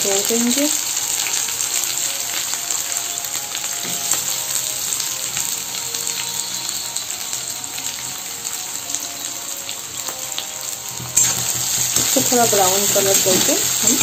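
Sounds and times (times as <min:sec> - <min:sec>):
onions sizzling in hot oil: 0:00.0 - 0:14.0.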